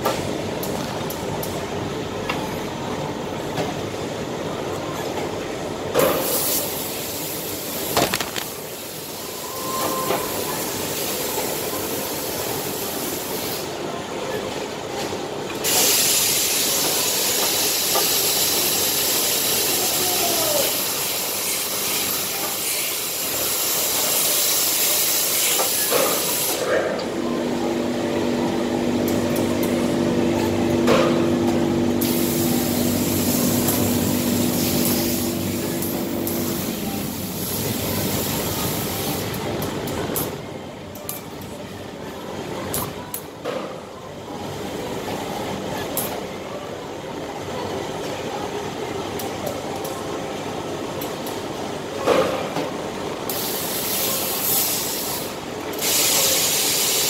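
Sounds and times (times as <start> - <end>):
steam iron hissing: 53.3 - 57.0.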